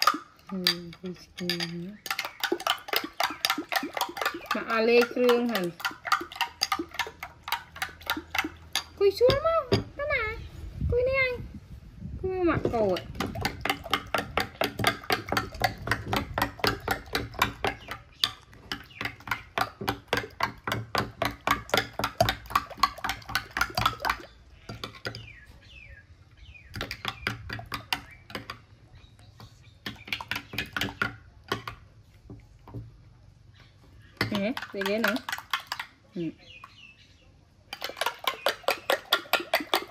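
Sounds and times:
spoon clinking in ceramic bowl: 0.0s - 9.9s.

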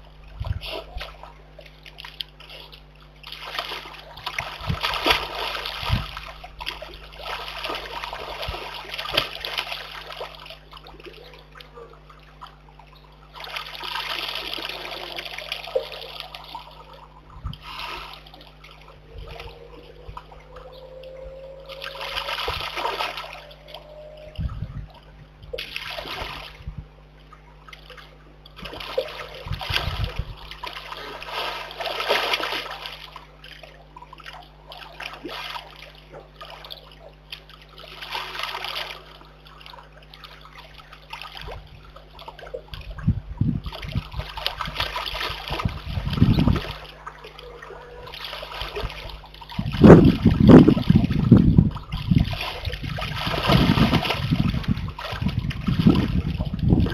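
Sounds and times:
animal splashing in muddy water: 0.0s - 12.6s, 13.2s - 26.7s, 27.6s - 56.9s
water trickling: 0.0s - 56.9s.

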